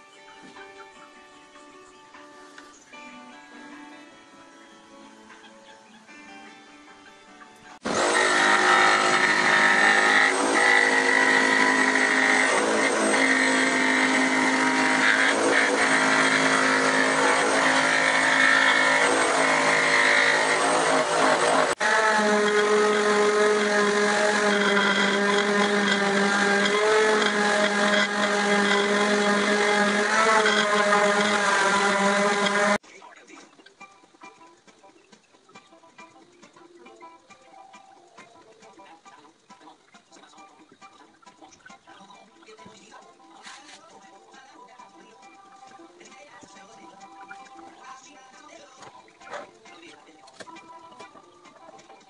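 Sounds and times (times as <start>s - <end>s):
power tool motor whine: 7.8s - 32.8s.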